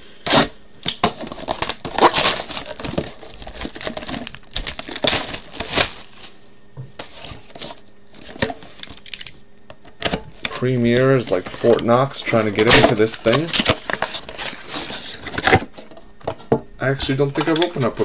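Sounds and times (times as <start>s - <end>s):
plastic shrink wrap tearing: 0.3s - 6.2s.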